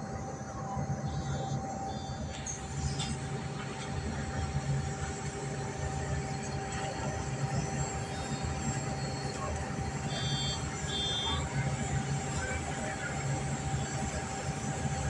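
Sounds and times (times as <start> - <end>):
bus engine and tyre rumble: 0.0 - 15.0.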